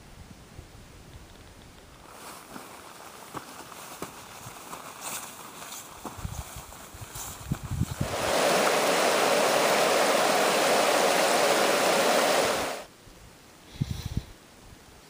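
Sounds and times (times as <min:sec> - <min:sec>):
footsteps on scree: 0:01.9 - 0:08.0
creek rushing over rocks: 0:08.0 - 0:12.9.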